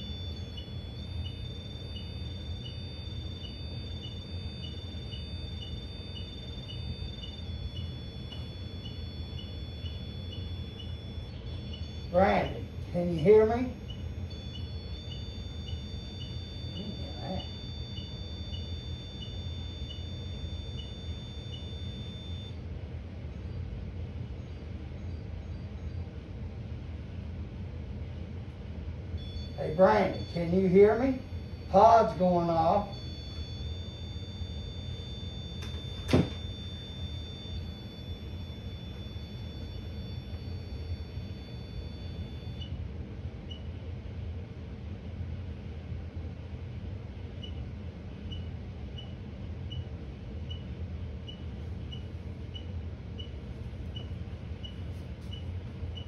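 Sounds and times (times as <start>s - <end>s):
electronic beeper chirping: 0.0s - 22.6s, 29.2s - 42.8s
thin electronic whine: 0.0s - 45.0s, 45.8s - 56.0s
low steady hum: 0.0s - 56.0s.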